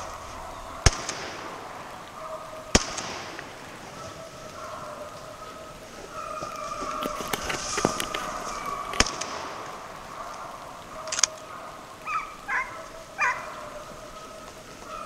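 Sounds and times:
distant hounds baying: 0:00.0 - 0:15.0
sharp clicks: 0:06.9 - 0:10.4, 0:11.0 - 0:11.4.

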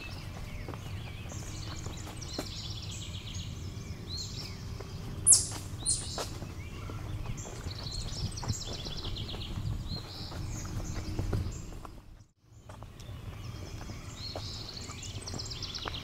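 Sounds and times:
birds trilling: 0:00.0 - 0:12.0
sharp downward-sweeping bird call: 0:05.3 - 0:06.3.

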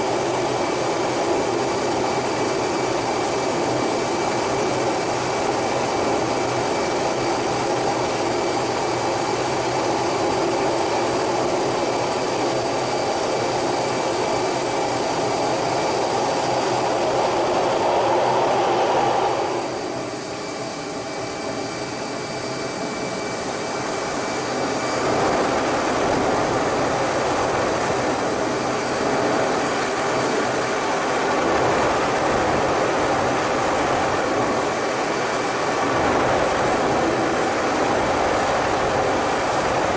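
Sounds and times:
jet engine and airflow roar: 0:00.0 - 0:39.9
faint high whines: 0:12.3 - 0:39.9.

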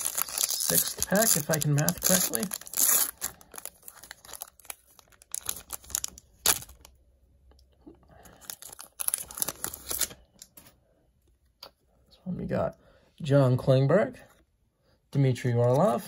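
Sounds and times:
foil wrapper crinkling: 0:00.0 - 0:07.0, 0:08.4 - 0:10.2.

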